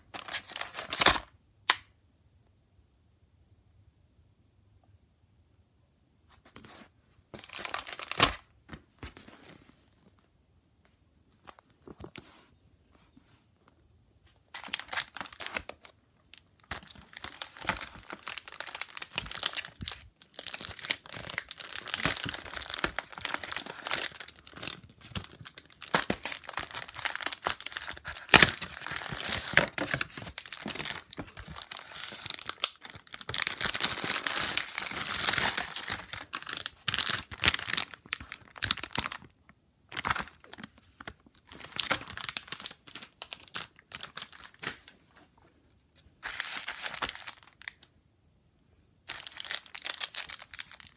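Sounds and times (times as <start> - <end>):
plastic wrapping crinkling: 7.4 - 9.6, 14.3 - 44.9, 46.2 - 47.9, 49.0 - 50.9.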